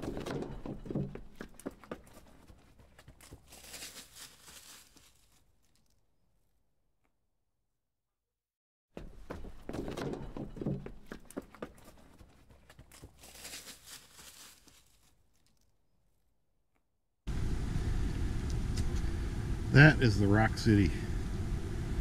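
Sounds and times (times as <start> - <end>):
footsteps on dirt trail: 0.0 - 5.9, 9.0 - 15.6
rustling: 0.8 - 6.2, 10.3 - 16.2.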